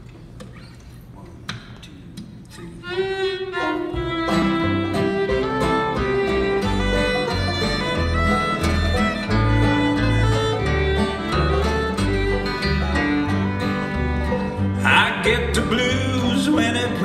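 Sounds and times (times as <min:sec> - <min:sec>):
fiddle melody: 0:02.8 - 0:17.0
acoustic guitar: 0:03.5 - 0:17.0
banjo: 0:03.5 - 0:17.0
upright bass: 0:03.9 - 0:17.0.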